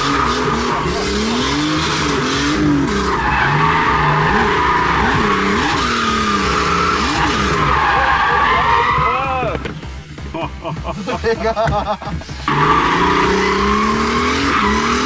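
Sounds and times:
car engine revving: 0.0 - 15.0
tyres squealing: 2.9 - 9.6.

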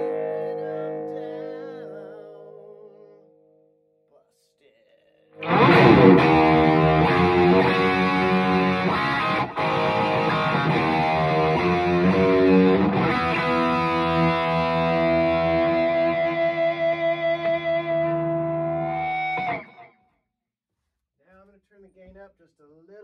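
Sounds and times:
electric guitar strummed chords: 0.0 - 3.4, 5.4 - 19.8
electric guitar picked notes: 0.0 - 3.6, 5.4 - 19.9.

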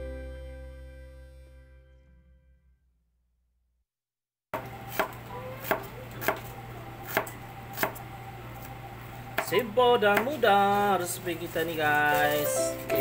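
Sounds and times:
knife chopping on cutting board: 4.6 - 8.0
low steady hum: 4.6 - 13.0.

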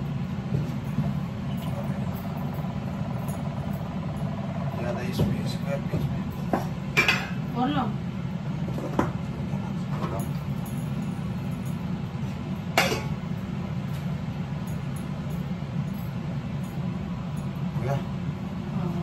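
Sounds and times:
steady low hum: 0.0 - 19.0
metal utensils clinking on pan: 12.8 - 13.2.

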